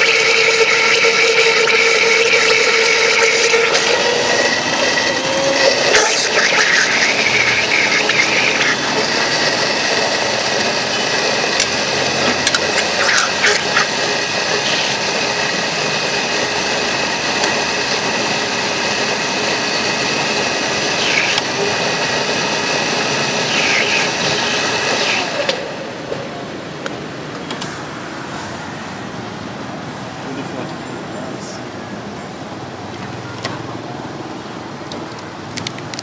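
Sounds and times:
electric blender running: 0.0s - 26.1s.

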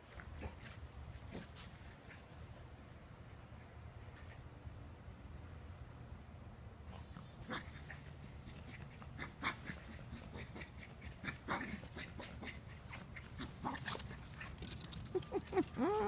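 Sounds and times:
small dogs yipping and whimpering: 7.4s - 16.0s.

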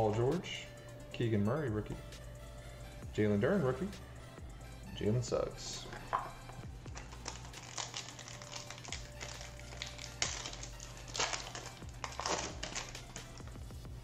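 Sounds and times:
wrapper tearing and crinkling: 6.9s - 13.5s.

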